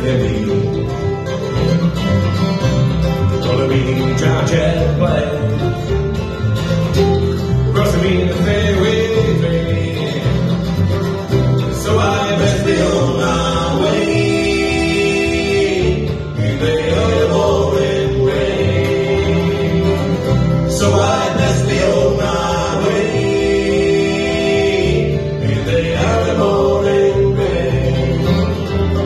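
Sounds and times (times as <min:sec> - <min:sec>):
voices singing: 0:00.0 - 0:01.2, 0:07.7 - 0:29.0
acoustic guitar: 0:00.0 - 0:29.0
mandolin: 0:00.0 - 0:29.0
upright double bass: 0:00.0 - 0:29.0.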